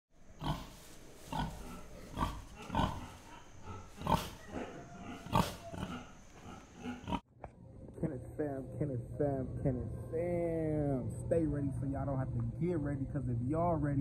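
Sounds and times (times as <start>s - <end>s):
deep growls and grunts: 1.3s - 7.2s.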